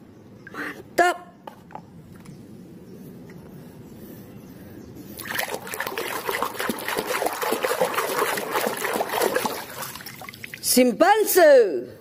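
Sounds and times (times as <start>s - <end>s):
splashing in soapy water: 5.2s - 10.7s.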